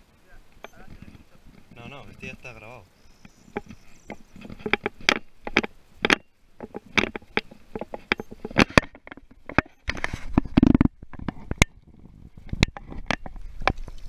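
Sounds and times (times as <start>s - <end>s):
hand rubbing and knocking camera: 3.3s - 14.0s.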